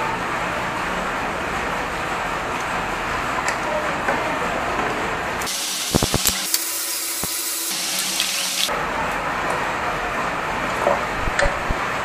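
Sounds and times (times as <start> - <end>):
steady hissing noise: 5.5 - 7.8.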